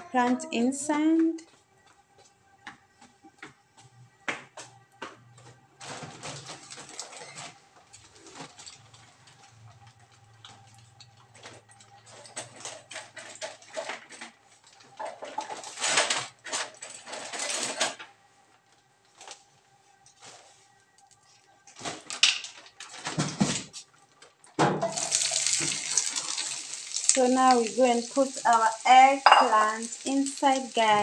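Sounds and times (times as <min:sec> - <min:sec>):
oil crackling in frying pan: 0:24.8 - 0:31.0.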